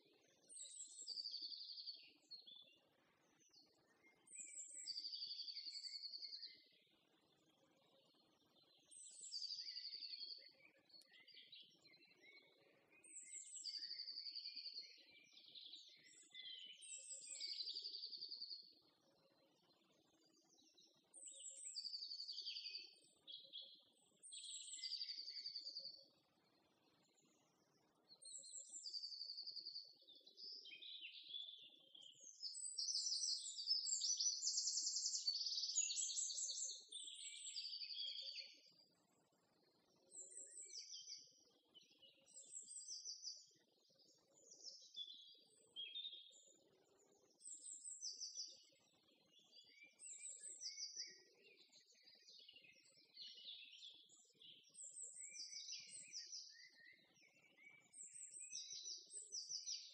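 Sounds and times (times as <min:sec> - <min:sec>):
songbirds chirping and trilling: 0:00.0 - 0:59.9.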